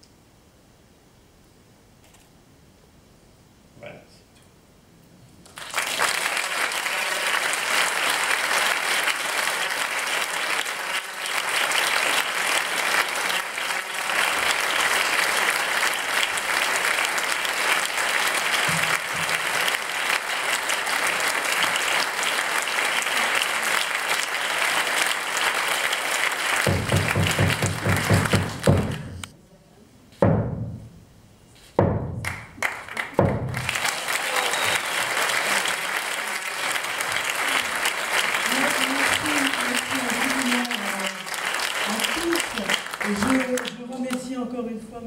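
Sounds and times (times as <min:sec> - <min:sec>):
audience applauding: 0:05.4 - 0:29.3, 0:32.2 - 0:44.3.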